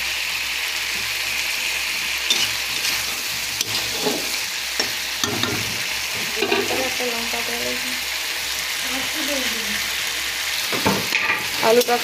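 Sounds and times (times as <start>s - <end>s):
potatoes sizzling in oil: 0.0s - 12.0s
spatula stirring and scraping: 1.8s - 6.9s
spatula knocking pan: 2.3s - 6.9s.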